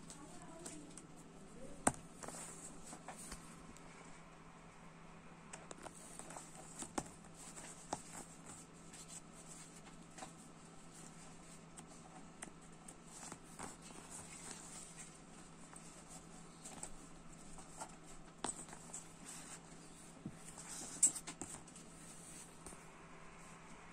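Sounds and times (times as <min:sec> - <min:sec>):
faint hum: 0:00.0 - 0:23.9.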